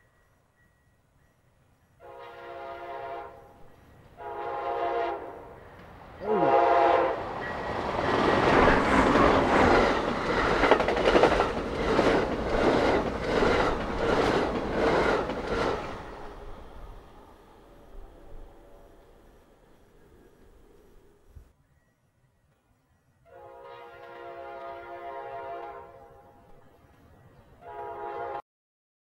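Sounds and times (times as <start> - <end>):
train cars rumbling past: 0.4 - 21.3
train horn blasts: 2.0 - 5.6, 6.2 - 7.4, 23.2 - 26.6, 27.6 - 28.4
train wheels clickety-clack: 7.2 - 16.6, 24.0 - 24.9.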